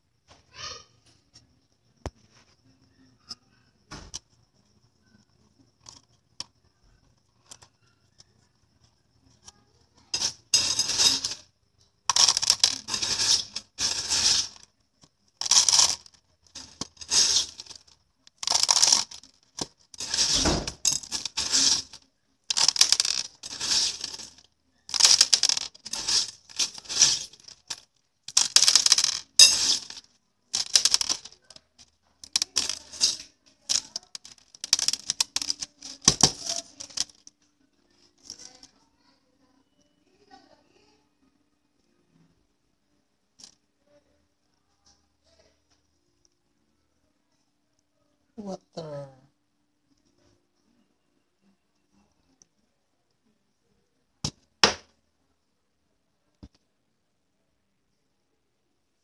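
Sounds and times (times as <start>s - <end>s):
pebbles rattling into plastic bottle: 10.2s - 11.5s, 12.1s - 37.4s, 38.2s - 38.7s.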